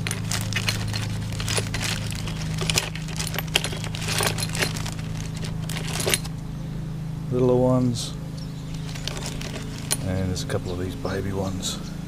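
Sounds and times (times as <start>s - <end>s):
plastic bag rummaging: 0.0s - 6.3s, 8.8s - 10.1s
metal plugs clinking: 0.0s - 6.4s, 8.7s - 10.3s
steady low hum: 0.0s - 12.0s.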